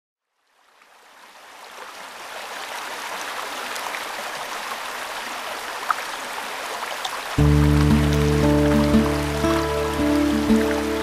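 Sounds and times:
water splashes: 0:00.4 - 0:11.0
river babbling over stones: 0:00.5 - 0:11.0.

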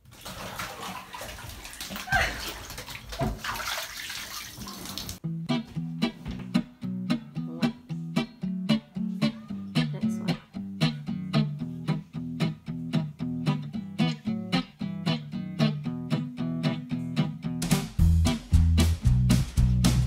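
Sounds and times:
guitar picking plucked notes: 0:05.2 - 0:20.0
heavy bass line: 0:17.6 - 0:20.0.

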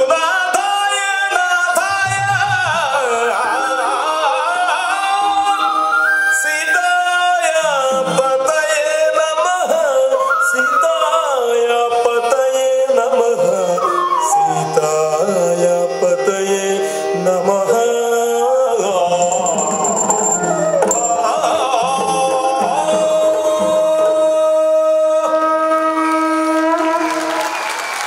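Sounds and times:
person singing a melody: 0:00.0 - 0:27.3
hand drums: 0:01.9 - 0:03.5.

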